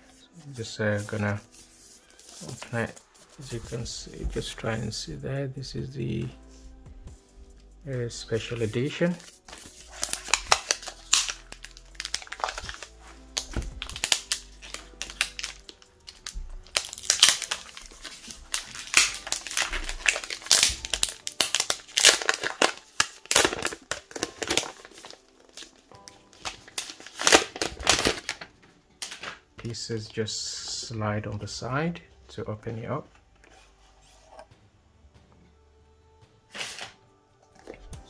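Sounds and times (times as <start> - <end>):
plastic shrink wrap crinkling: 1.0 - 4.6, 8.3 - 29.4.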